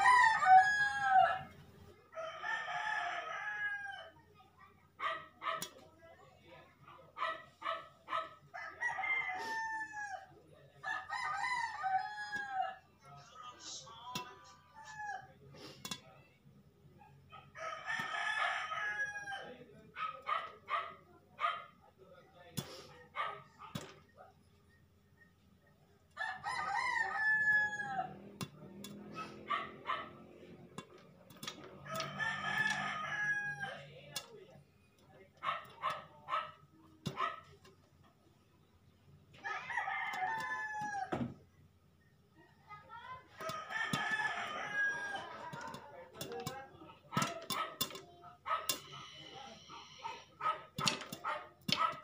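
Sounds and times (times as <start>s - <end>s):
rooster crowing: 0.0s - 4.2s, 8.5s - 12.8s, 17.5s - 19.5s, 26.2s - 28.3s, 31.8s - 33.9s, 39.4s - 41.4s, 43.3s - 45.7s.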